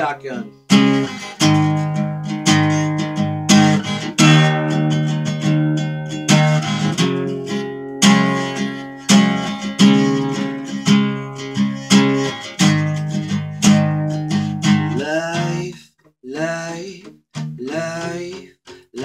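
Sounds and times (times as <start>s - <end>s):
acoustic guitar strumming chords: 0.0s - 15.8s, 16.4s - 19.0s
man singing: 14.9s - 19.0s.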